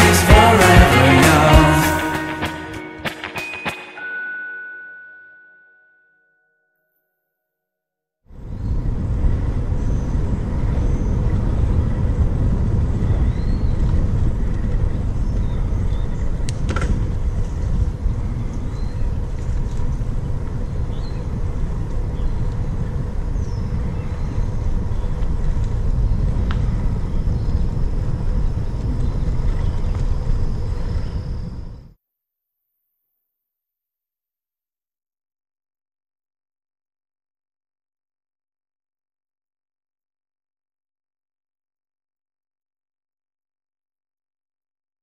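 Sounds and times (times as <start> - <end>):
wind on microphone: 8.3 - 32.0
bicycle rolling on asphalt: 8.4 - 31.8.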